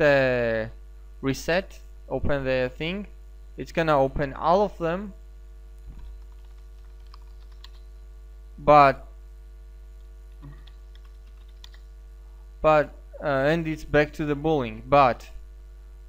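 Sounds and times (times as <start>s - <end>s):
electrical hum: 0.0s - 16.0s
typing on keyboard: 6.0s - 7.9s, 10.5s - 11.9s.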